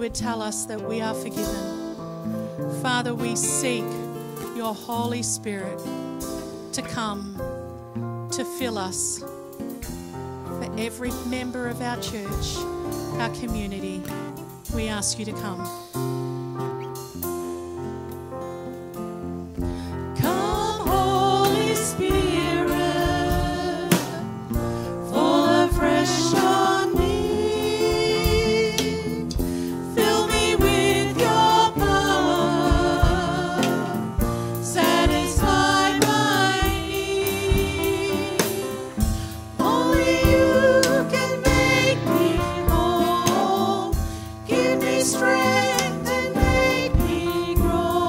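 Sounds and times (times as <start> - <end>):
guitar: 0.0 - 48.0
drum kit: 1.2 - 7.6, 10.7 - 48.0
women singing together: 20.2 - 24.4, 25.1 - 48.0.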